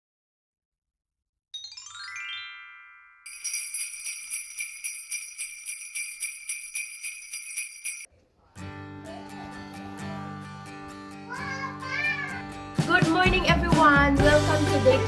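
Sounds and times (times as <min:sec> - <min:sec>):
sleigh bells jingling: 0:01.8 - 0:08.1.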